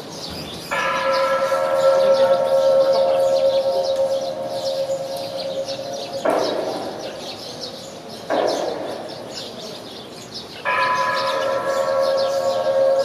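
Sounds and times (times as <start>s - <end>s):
gong or cymbal crashes ringing: 1.9s - 7.7s.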